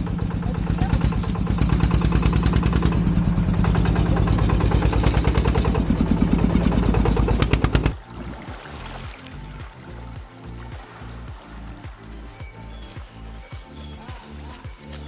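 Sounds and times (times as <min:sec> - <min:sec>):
diesel truck engine chugging: 0:00.0 - 0:08.0.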